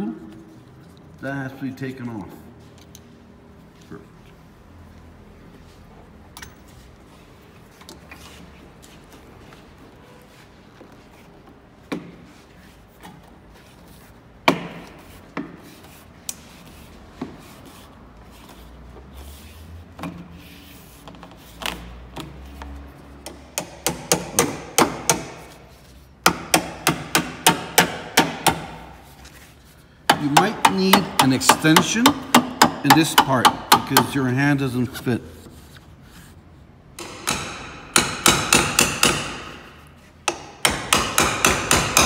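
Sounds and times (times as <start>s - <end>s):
fast hammer blows on metal: 40.3s - 42.0s.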